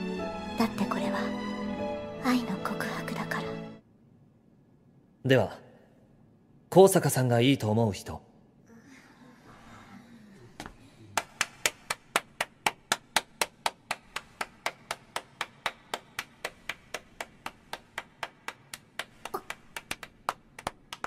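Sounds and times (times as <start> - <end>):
person clapping: 11.2 - 21.0.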